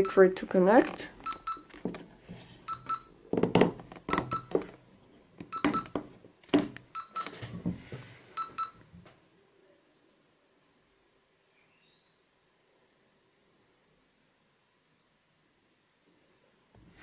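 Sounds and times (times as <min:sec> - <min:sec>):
short electronic beeps: 0:02.7 - 0:03.1, 0:04.1 - 0:04.5.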